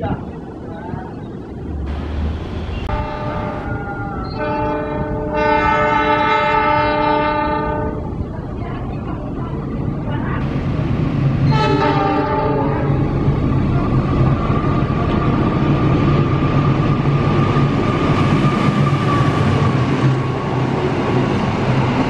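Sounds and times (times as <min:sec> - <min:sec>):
locomotive engine drone: 0:00.2 - 0:06.6
locomotive multi-tone horn: 0:02.8 - 0:08.1, 0:11.5 - 0:13.1.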